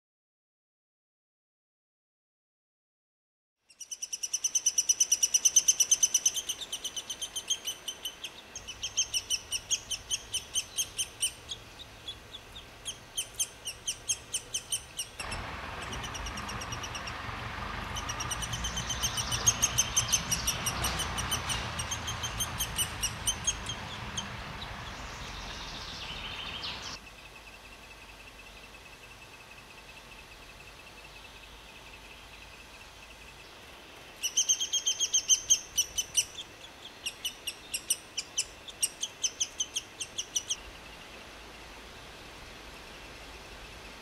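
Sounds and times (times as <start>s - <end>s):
woodpeckers calling: 3.8s - 27.0s, 34.2s - 40.6s.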